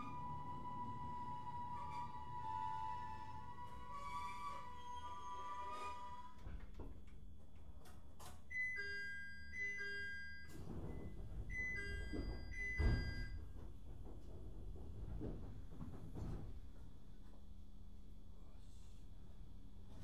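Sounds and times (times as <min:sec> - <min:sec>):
train low rumble: 0:00.0 - 0:04.8, 0:10.5 - 0:20.0.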